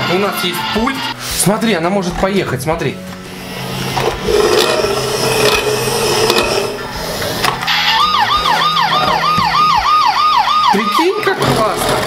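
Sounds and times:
steady hum: 0:03.1 - 0:07.6
toy police siren wailing: 0:07.7 - 0:11.3.

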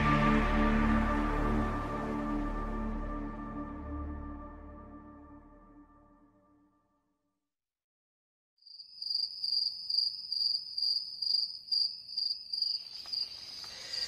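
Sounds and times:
insect chirping: 0:08.6 - 0:14.0.

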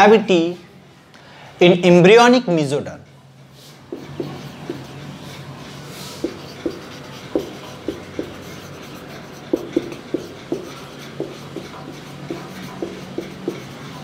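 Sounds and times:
marker squeaking on whiteboard: 0:03.7 - 0:14.0.

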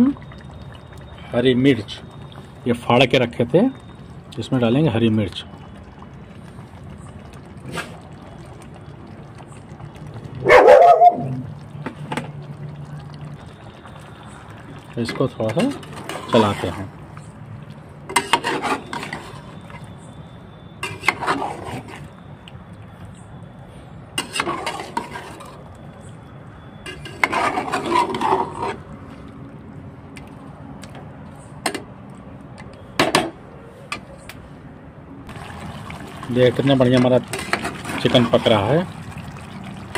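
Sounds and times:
dog barking: 0:10.4 - 0:11.4
spatula scraping metal pot: 0:15.6 - 0:16.8, 0:18.1 - 0:19.6, 0:20.8 - 0:22.1, 0:24.2 - 0:25.6, 0:26.9 - 0:28.8, 0:37.2 - 0:38.4.

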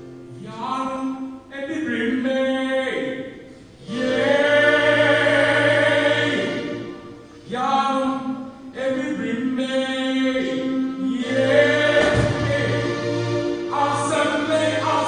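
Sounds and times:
man singing into a microphone: 0:07.5 - 0:13.0.

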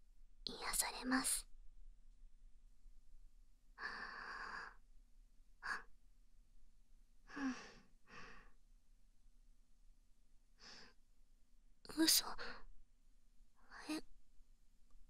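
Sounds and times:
woman breathing: 0:03.8 - 0:04.8, 0:07.3 - 0:08.6.

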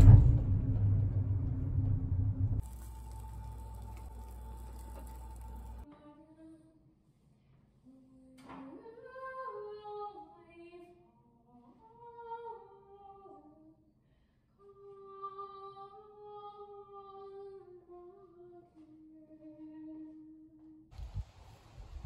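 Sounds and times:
woman singing unaccompanied: 0:02.9 - 0:06.8, 0:07.9 - 0:13.8, 0:14.6 - 0:20.8.

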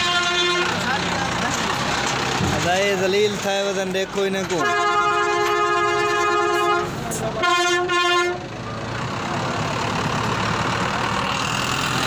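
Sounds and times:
truck horn blasts: 0:00.0 - 0:00.9, 0:04.6 - 0:08.5.

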